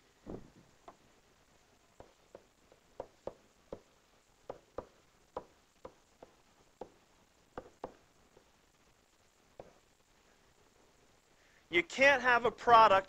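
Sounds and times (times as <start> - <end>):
pen tapping on whiteboard: 2.0 - 3.9, 4.5 - 7.0, 7.6 - 8.0, 9.6 - 9.8.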